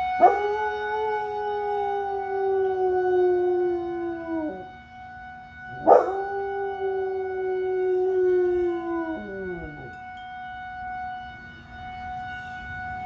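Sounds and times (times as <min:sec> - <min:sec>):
fire alarm tones: 0:00.0 - 0:13.0
dog howling: 0:05.8 - 0:09.9.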